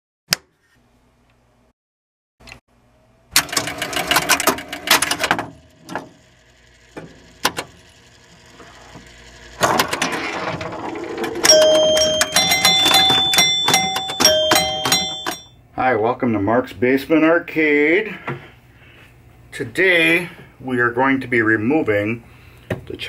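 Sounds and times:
pinball relays clicking: 0:03.4 - 0:08.2, 0:09.5 - 0:15.6
ringing tones stepping in pitch: 0:11.4 - 0:15.6.

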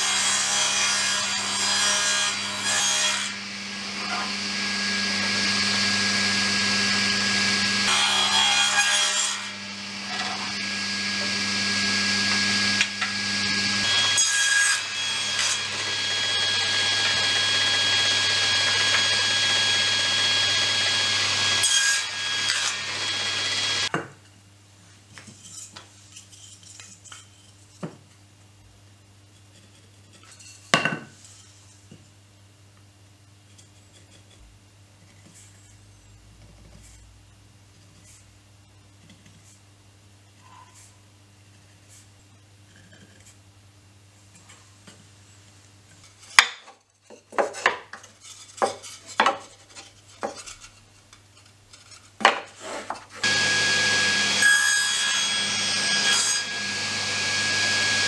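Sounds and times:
table saw cutting wood: 0:00.0 - 0:23.9, 0:52.2 - 0:58.0.

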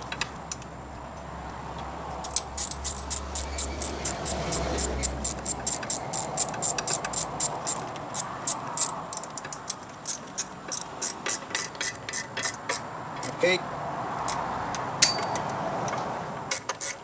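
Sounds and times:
hand ratchet clicking: 0:02.2 - 0:13.4, 0:15.0 - 0:17.0.

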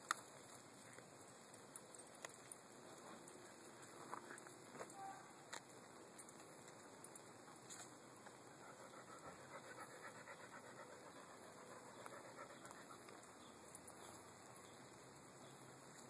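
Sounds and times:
dog panting: 0:08.5 - 0:13.3.

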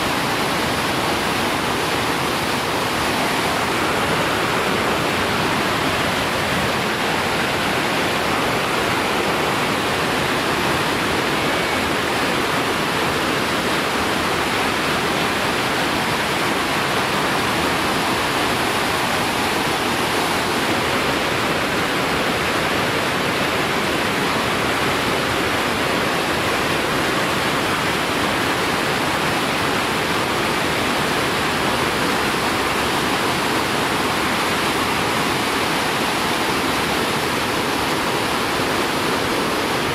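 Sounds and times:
whitewater rapid rushing: 0:00.0 - 0:39.9.

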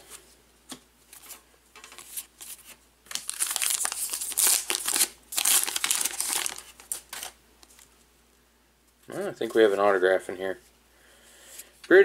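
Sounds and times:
wrapper tearing and crinkling: 0:02.0 - 0:07.8.

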